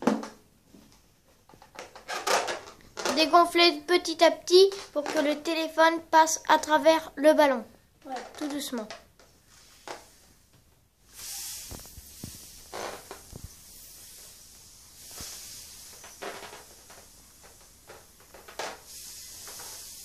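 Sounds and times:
rubber rubbing and clicking: 1.4s - 3.7s, 4.5s - 5.6s, 8.0s - 10.5s, 11.1s - 20.0s
air hissing out of balloon: 9.4s - 20.0s.

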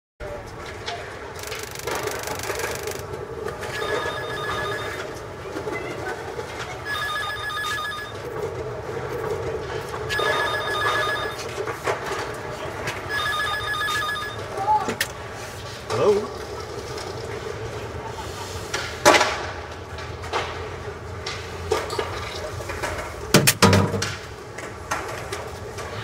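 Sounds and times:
city background noise: 0.2s - 26.0s
payphone trilling rings: 1.4s - 3.0s, 3.6s - 5.2s, 6.8s - 8.4s, 10.1s - 11.6s, 13.0s - 14.8s.

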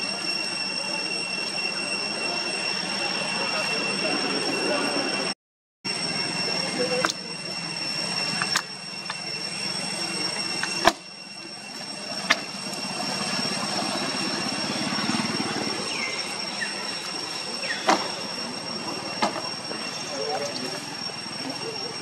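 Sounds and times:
distant engine drone: 0.0s - 22.0s.

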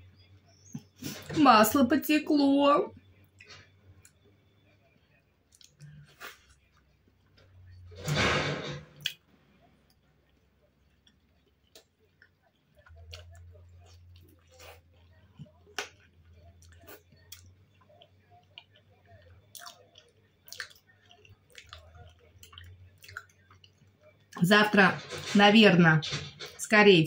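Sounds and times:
wet chewing and lip smacks: 5.5s - 7.4s, 9.9s - 24.4s.

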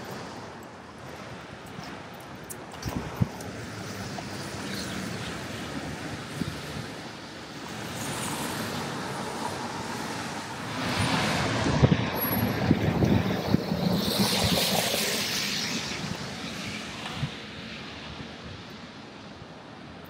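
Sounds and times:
street traffic: 0.0s - 20.0s
vehicle passing on wet street: 3.4s - 18.1s.

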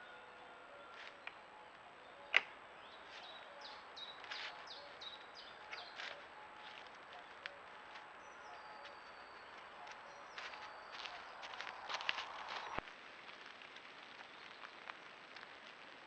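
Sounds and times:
bird singing: 0.0s - 12.8s
deer moving through leaf litter: 2.9s - 16.0s.

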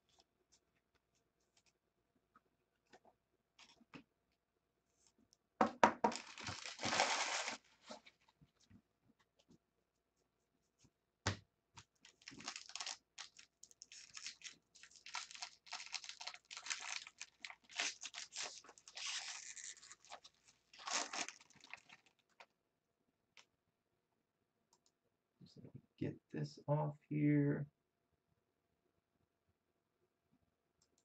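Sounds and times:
foil wrapper tearing and crinkling: 6.1s - 7.7s, 12.1s - 22.3s.

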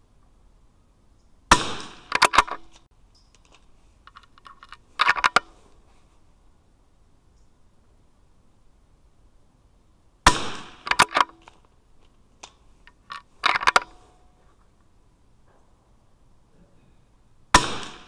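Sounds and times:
rifle shot: 1.5s - 2.7s, 10.2s - 11.4s, 17.5s - 18.0s
rifle action metallic clicks: 1.8s - 5.5s, 10.8s - 11.6s, 12.4s - 14.0s.

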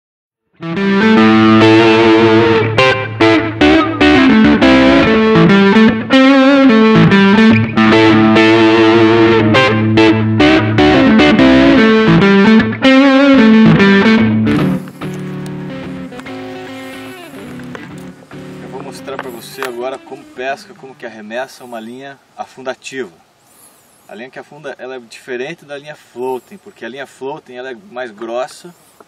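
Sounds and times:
guitar intro music: 0.5s - 21.2s.

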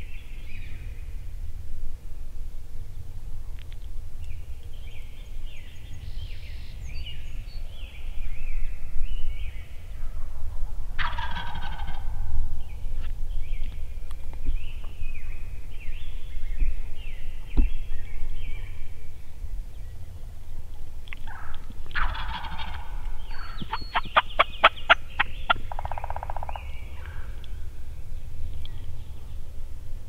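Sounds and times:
turkey gobbling: 11.0s - 12.1s, 22.0s - 26.5s.

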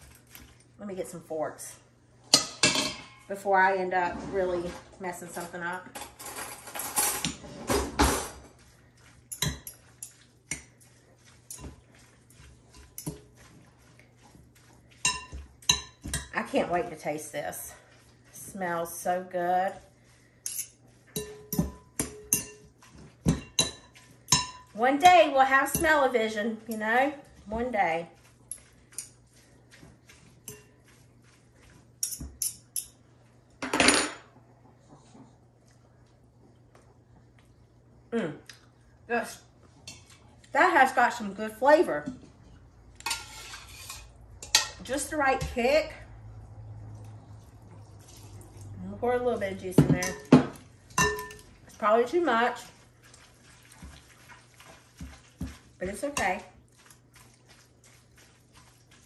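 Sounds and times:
forks clinking against pot: 9.3s - 10.7s, 15.0s - 16.3s, 20.4s - 24.7s, 30.5s - 30.8s, 32.0s - 33.0s, 51.0s - 51.4s.

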